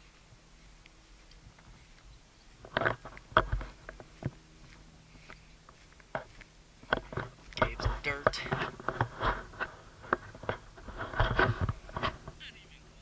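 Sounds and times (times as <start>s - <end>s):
faint steady background noise: 0.0s - 13.0s
sharp clicks and knocks: 6.0s - 12.4s.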